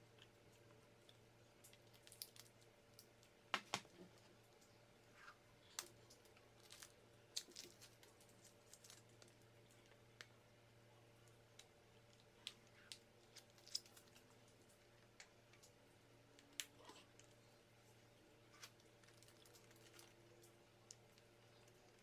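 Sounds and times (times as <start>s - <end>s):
plastic package clicks and crackles: 1.7s - 3.9s, 5.7s - 10.3s, 11.6s - 14.2s.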